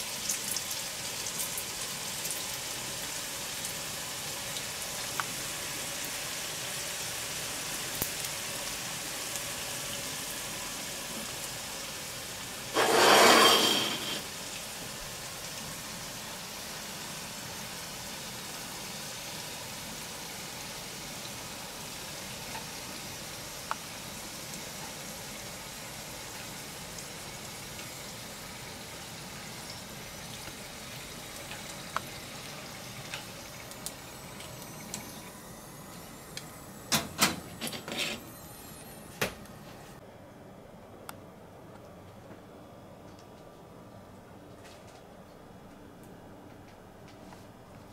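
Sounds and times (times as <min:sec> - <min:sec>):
oil sizzling: 0:00.0 - 0:39.2
loud sizzling burst: 0:12.0 - 0:14.8.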